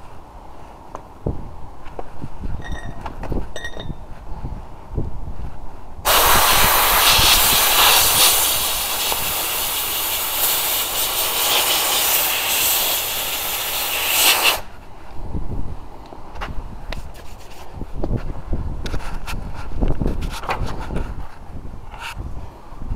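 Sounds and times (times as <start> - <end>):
abrasive blaster hissing: 6.1 - 14.6.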